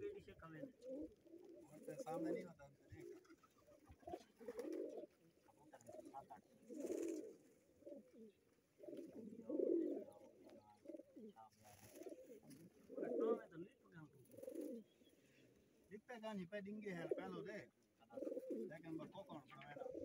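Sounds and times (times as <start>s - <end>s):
pigeons cooing: 0.0s - 15.9s, 16.8s - 20.0s.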